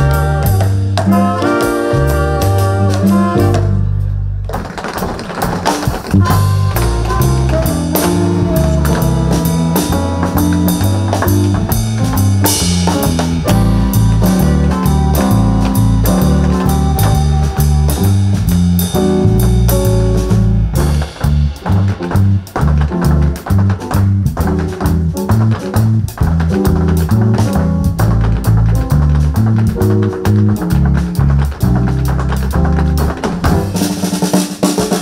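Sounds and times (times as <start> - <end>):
drum kit steady beat: 0.0 - 3.8, 5.7 - 35.0
horns: 0.0 - 4.2, 6.1 - 10.2
bass line: 0.0 - 4.6, 6.0 - 34.4
guitar: 0.0 - 4.6, 5.8 - 33.8
piano: 0.0 - 35.0.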